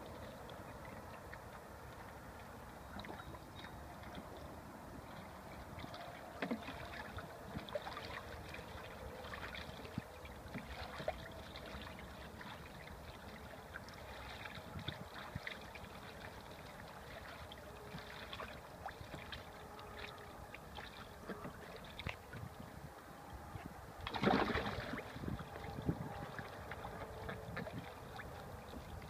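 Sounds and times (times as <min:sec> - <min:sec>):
ducks splashing in water: 0:05.1 - 0:22.5, 0:24.0 - 0:29.0.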